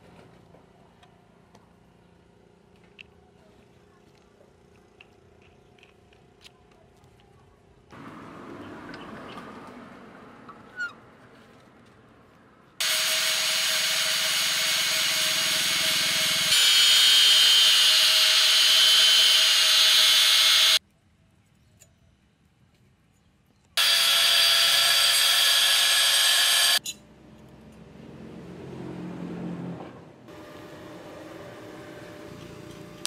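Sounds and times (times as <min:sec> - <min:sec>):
power grinder grinding steel: 0:12.8 - 0:20.8, 0:23.8 - 0:26.8.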